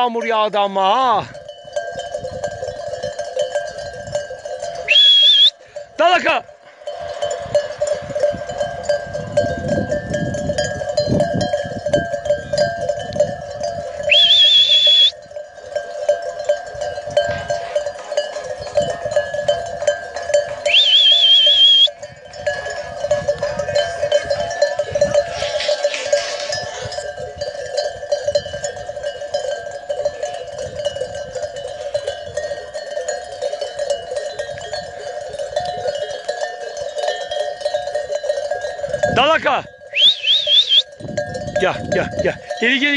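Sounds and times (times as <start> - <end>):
sheep bells ringing: 0.0 - 42.9
shrill warbling whistle: 4.9 - 5.6, 14.1 - 15.2, 20.7 - 21.9, 39.9 - 40.9.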